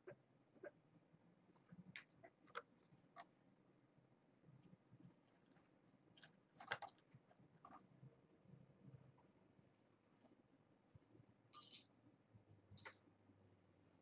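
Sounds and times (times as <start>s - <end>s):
kittens playing clicks and scratches: 1.4s - 3.6s, 4.4s - 9.4s.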